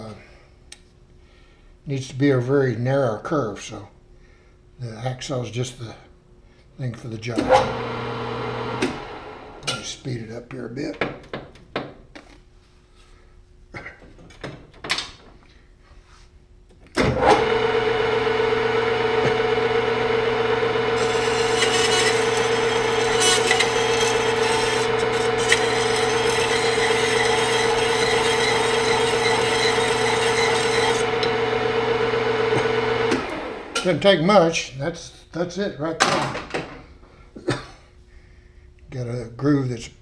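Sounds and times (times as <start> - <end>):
metal lathe humming: 7.4 - 9.7, 17.2 - 33.9
hacksaw blade scraping metal: 21.0 - 31.1.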